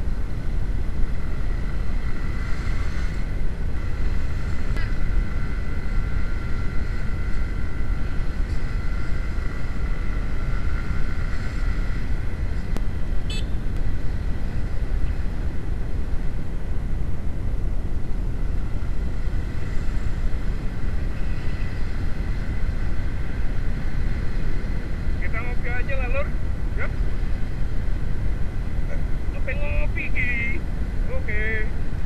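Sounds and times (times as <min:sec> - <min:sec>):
motorcycle engine running: 0:00.0 - 0:25.2
wind rush on microphone: 0:00.0 - 0:32.0.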